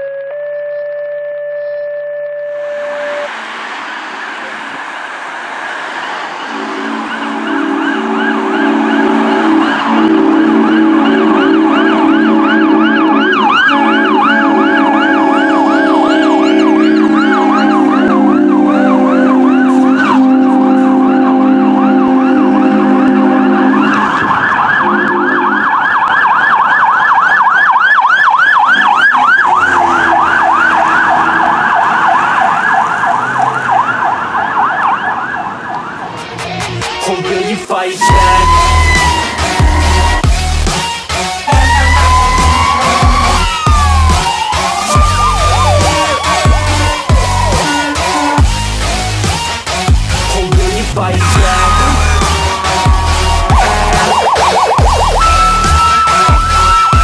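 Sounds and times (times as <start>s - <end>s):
electronic siren yelping: 0.0s - 3.3s, 5.6s - 36.3s, 38.0s - 50.3s, 51.2s - 57.0s
air horn blasts: 5.9s - 26.1s, 28.7s - 32.6s, 38.0s - 57.0s.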